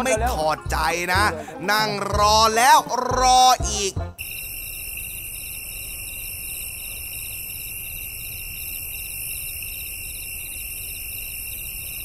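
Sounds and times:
high-pitched fluttering buzz: 4.2s - 12.0s.

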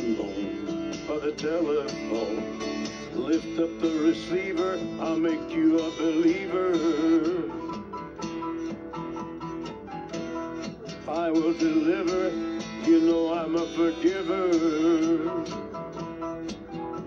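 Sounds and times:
person singing: 0.0s - 7.9s, 11.0s - 15.8s
strummed acoustic guitar: 0.0s - 17.0s.

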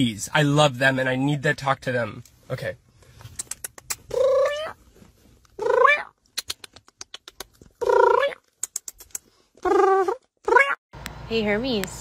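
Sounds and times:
cat meowing: 9.7s - 10.8s.

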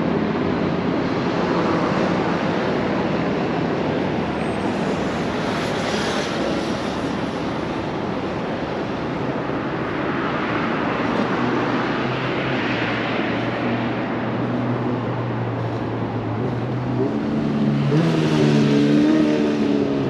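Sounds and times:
low engine hum: 0.0s - 20.0s
tyre noise of passing traffic: 0.0s - 20.0s
vehicle engines running: 0.0s - 20.0s.

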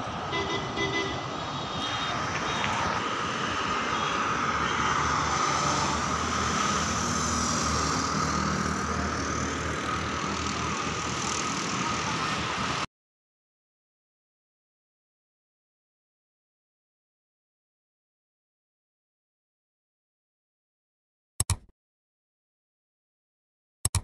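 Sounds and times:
motorbikes and cars passing: 0.0s - 12.9s.

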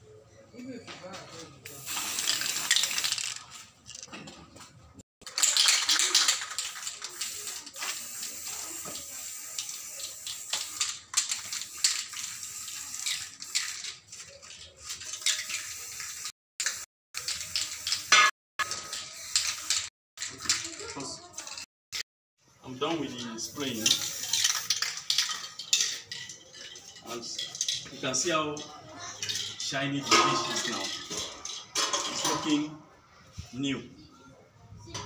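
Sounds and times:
spray can hissing: 1.7s - 4.0s, 5.4s - 20.7s, 23.6s - 26.0s.

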